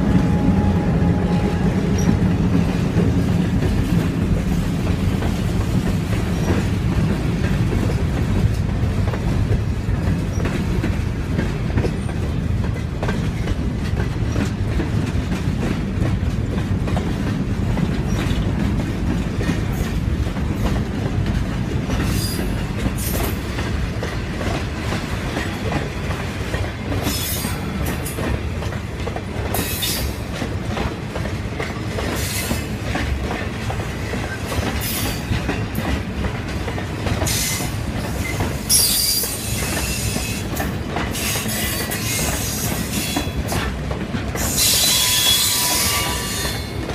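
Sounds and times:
freight train wheels rumbling: 0.0 - 46.9
wheels clacking over rail joints: 0.3 - 46.9
high-pitched wheel squeal: 44.6 - 46.7.

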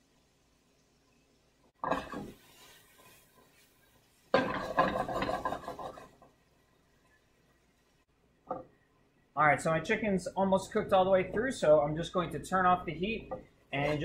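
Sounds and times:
frying pan clatter: 1.8 - 3.6, 4.3 - 6.2
chicken rattling in a pan: 1.8 - 6.4.

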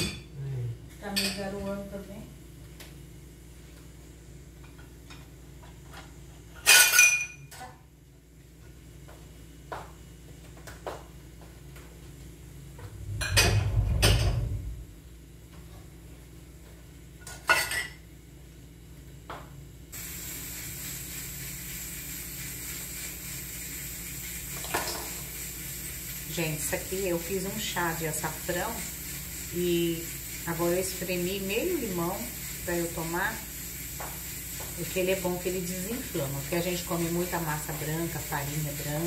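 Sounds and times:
dishes and cutlery clinking: 6.6 - 7.5, 17.3 - 18.0
scraping clatter of dishes: 13.0 - 14.6
steady hiss: 19.9 - 39.0.

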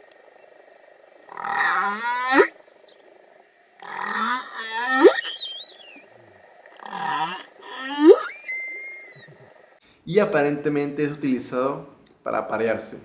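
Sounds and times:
whale moans and whoops: 1.3 - 2.8, 3.8 - 9.5
high wavering whale squeal: 1.3 - 3.0, 3.8 - 6.2, 6.8 - 9.5.

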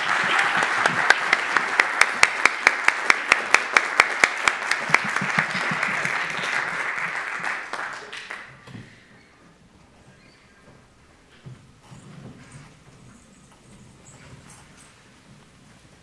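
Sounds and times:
audience applause: 0.0 - 8.7.

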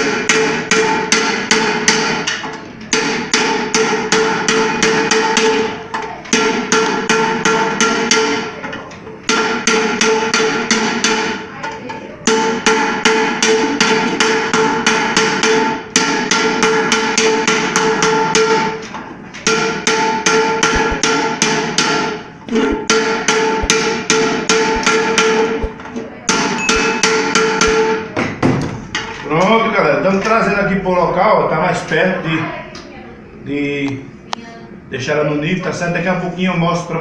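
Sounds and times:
metal pot ringing: 26.4 - 28.0.

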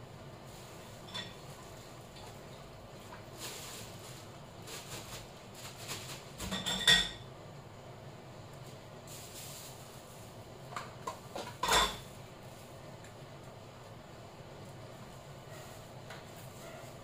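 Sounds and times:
pots and dishes clattering: 0.9 - 2.4, 5.8 - 7.3, 10.8 - 12.2.

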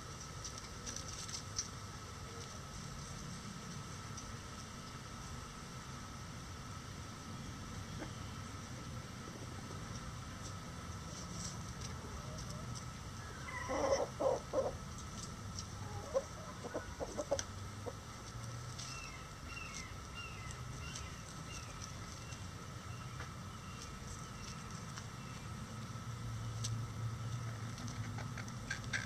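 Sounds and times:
chickens clucking: 7.7 - 8.5, 11.1 - 22.5.

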